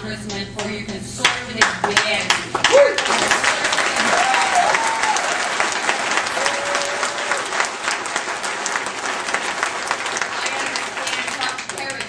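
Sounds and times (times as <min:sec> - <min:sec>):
audience applauding: 0:02.5 - 0:12.0.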